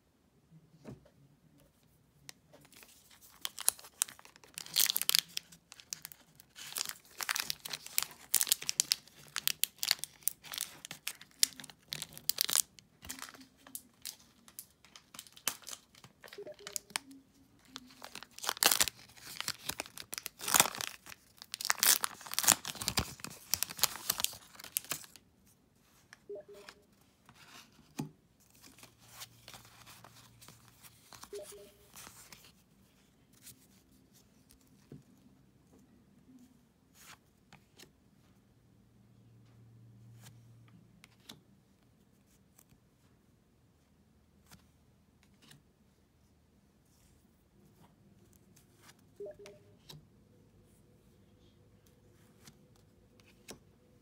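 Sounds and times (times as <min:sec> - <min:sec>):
cards rustling: 0:02.6 - 0:25.2, 0:26.8 - 0:34.9
foil wrapper crinkling and tearing: 0:02.8 - 0:15.9, 0:17.6 - 0:25.2.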